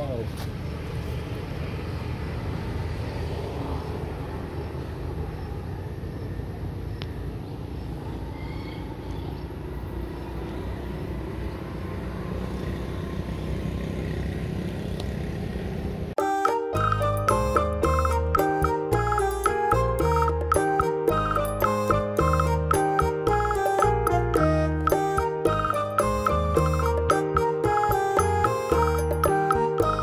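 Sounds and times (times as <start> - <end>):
road traffic rumble: 0.0 - 16.2.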